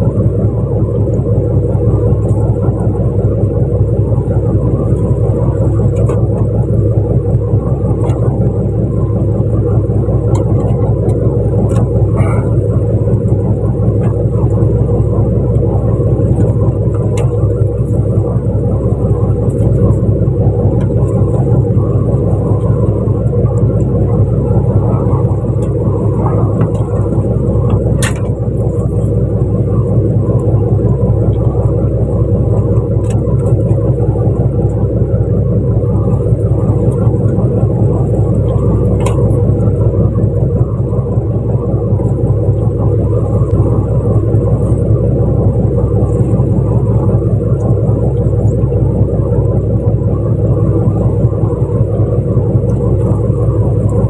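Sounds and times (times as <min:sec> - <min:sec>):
boat engine rumbling: 0:00.0 - 0:54.0.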